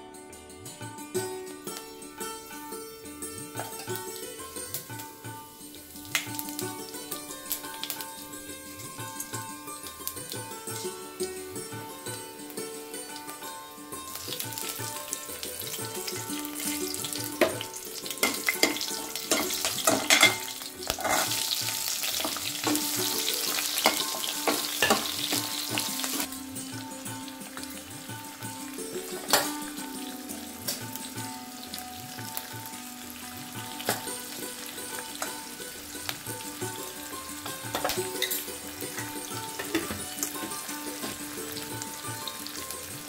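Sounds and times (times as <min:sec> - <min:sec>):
santoor background music: 0:00.0 - 0:43.0
spices and onion sizzling in oil: 0:00.8 - 0:43.0
steel ladle scraping a pan: 0:14.1 - 0:26.3, 0:29.0 - 0:29.7, 0:37.4 - 0:42.6.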